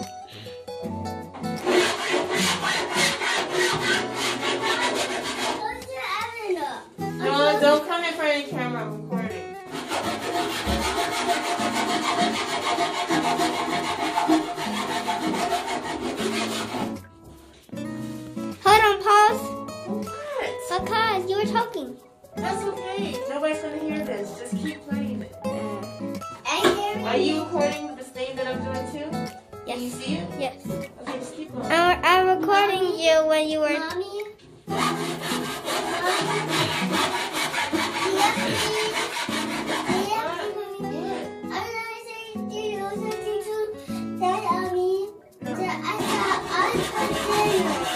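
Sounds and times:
knife sawing through board: 1.6s - 5.8s, 9.7s - 17.0s, 34.7s - 40.5s, 45.9s - 47.9s.

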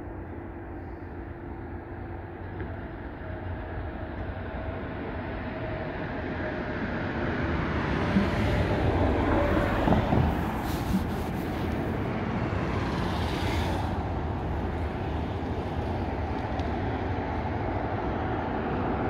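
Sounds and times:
highway traffic rumble: 0.0s - 19.0s.

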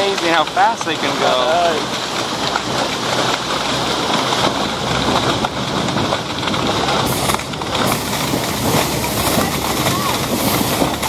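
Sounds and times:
boat engine running: 0.0s - 11.0s
water rushing and splashing: 0.0s - 11.0s.

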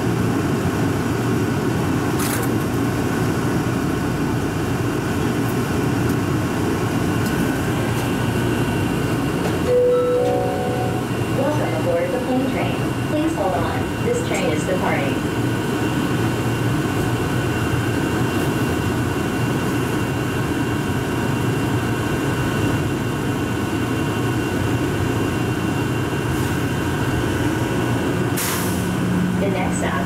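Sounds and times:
train low rumble: 0.0s - 30.0s.

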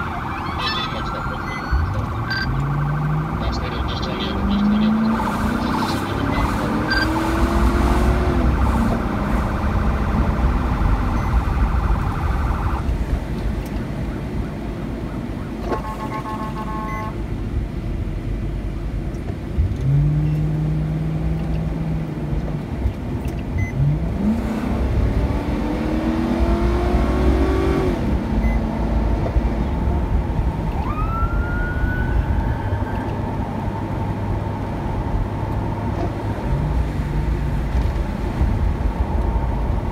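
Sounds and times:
police sirens whooping: 0.0s - 12.9s, 29.4s - 36.2s
siren yelp: 0.0s - 12.9s, 30.6s - 34.2s
vehicle engine and tyres on wet road: 0.0s - 39.9s.

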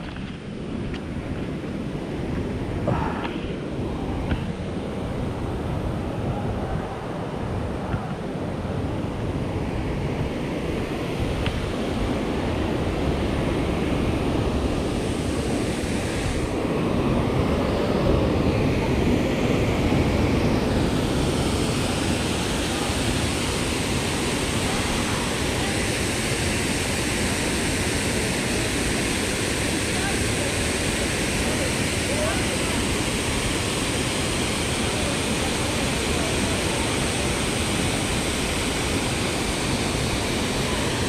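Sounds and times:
waterfall rushing: 20.7s - 41.0s.

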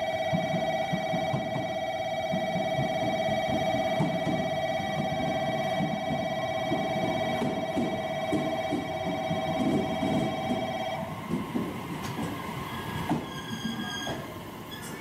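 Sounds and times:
steady electronic tone: 0.0s - 11.2s
train wheels rumbling: 0.0s - 15.0s.

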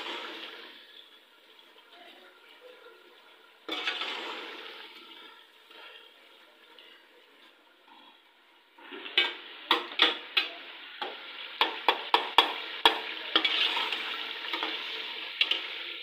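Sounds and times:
food sizzling in a pan: 0.0s - 16.0s
spoon knocking against pan: 11.6s - 13.1s.

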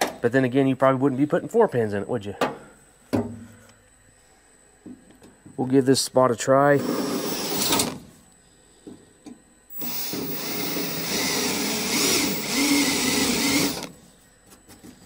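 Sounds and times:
cordless drill cutting steel: 6.8s - 8.0s, 9.7s - 13.9s.

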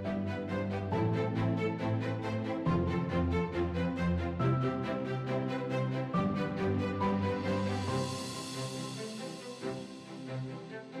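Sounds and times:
instrumental soundtrack music: 0.0s - 11.0s.

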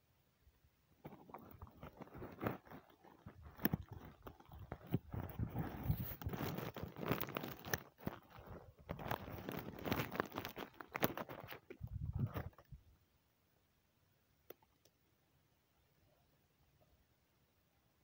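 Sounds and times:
camera handling crunching: 1.1s - 12.6s.

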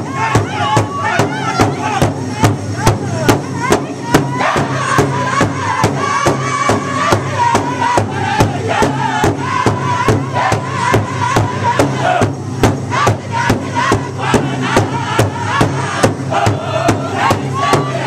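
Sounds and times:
large drum beating: 0.0s - 18.0s
men singing in unison: 4.1s - 18.0s.

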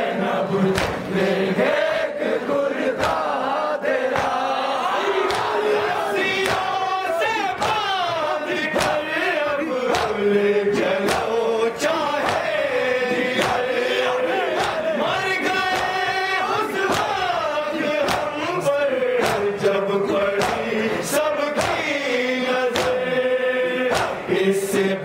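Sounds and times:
men chanting in unison: 0.0s - 25.0s
sharp slaps keeping time: 0.7s - 1.1s, 3.0s - 3.3s, 4.1s - 4.4s, 5.3s - 5.5s, 6.2s - 6.8s, 7.4s - 9.1s, 9.8s - 13.8s, 14.5s - 17.4s, 18.0s - 23.2s, 23.9s - 24.3s.

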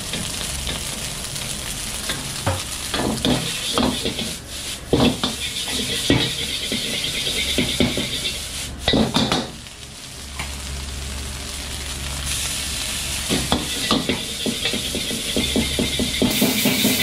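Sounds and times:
low roar of burner: 0.0s - 17.0s
steady sizzle: 0.0s - 17.0s
ladle scraping against a wok: 3.3s - 8.8s.

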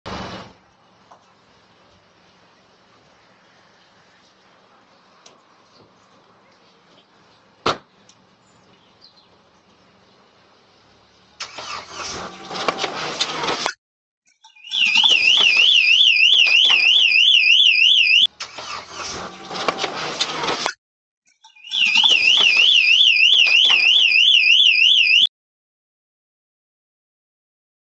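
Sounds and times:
noisy clatter and rumble: 0.1s - 2.3s
electronic alarm siren warbling: 14.5s - 18.3s, 21.5s - 25.3s.

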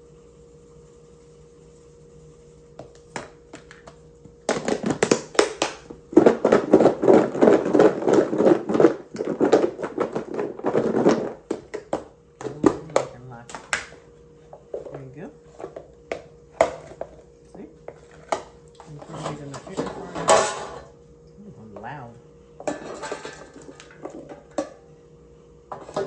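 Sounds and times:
potatoes rattling in plastic container: 6.1s - 13.1s.

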